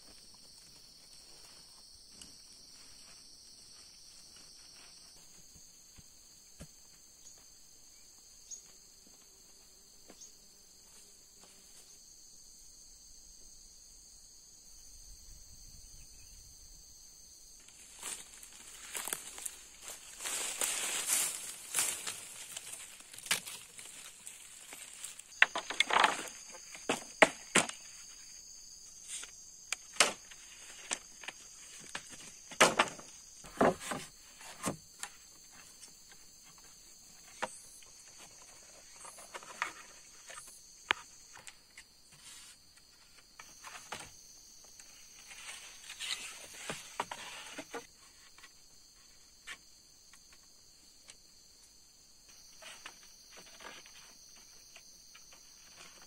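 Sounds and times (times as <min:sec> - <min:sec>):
insects chirring: 0:00.0 - 0:56.0
rustling and snapping of vines: 0:17.7 - 0:27.8.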